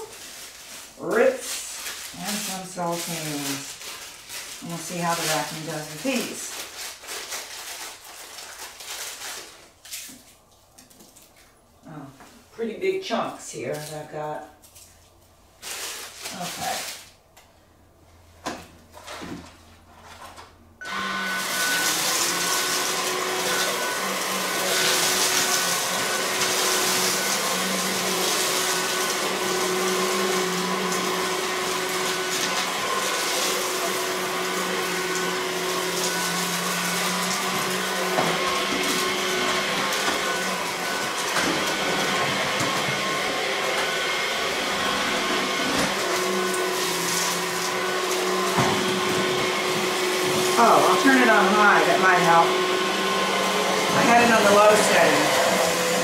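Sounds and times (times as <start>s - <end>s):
stick vacuum running: 20.8s - 56.0s.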